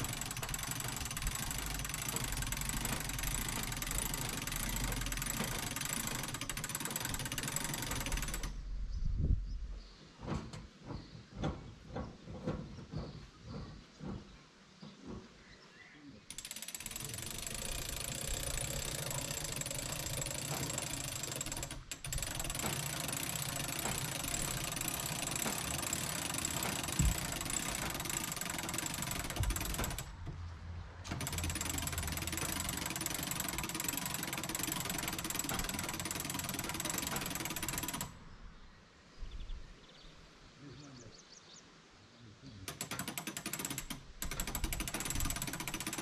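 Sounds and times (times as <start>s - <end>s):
machine motor rattling: 0.0s - 8.6s, 16.3s - 38.2s, 42.7s - 46.0s.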